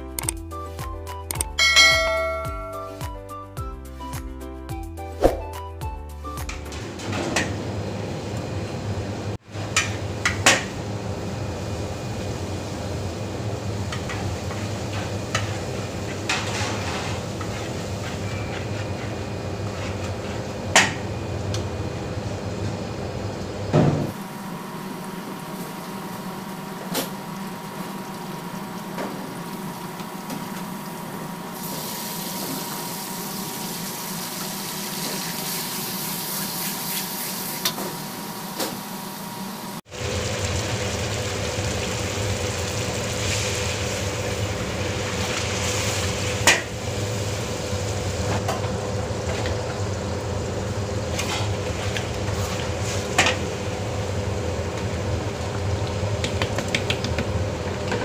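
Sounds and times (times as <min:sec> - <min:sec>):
kitchen background rush: 0:01.6 - 0:03.0, 0:06.4 - 0:58.0
paste sizzling in hot oil: 0:31.6 - 0:37.7.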